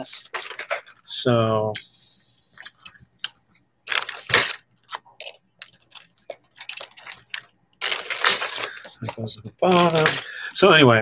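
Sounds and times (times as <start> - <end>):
trinkets clicking and clattering: 5.2 - 9.0.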